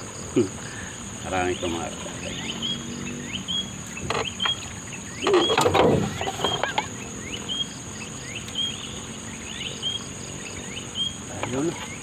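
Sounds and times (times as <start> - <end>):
insects whining: 0.0 - 12.0
bamboo trap rattling: 4.0 - 4.6, 5.2 - 7.0.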